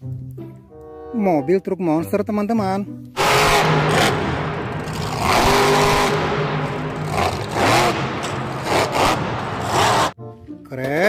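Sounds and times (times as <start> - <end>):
monster truck engine revving: 3.2 - 10.2.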